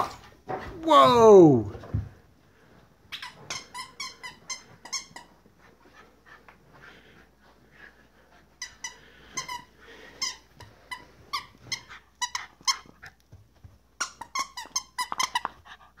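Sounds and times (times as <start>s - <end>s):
squeaky toy squeaking: 3.1s - 5.3s, 14.0s - 15.6s.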